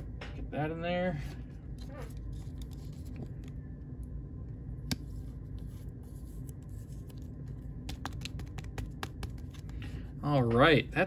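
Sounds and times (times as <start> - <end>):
low room hum: 0.0 - 11.0
plastic rubbing on card: 1.8 - 3.3, 4.9 - 10.0.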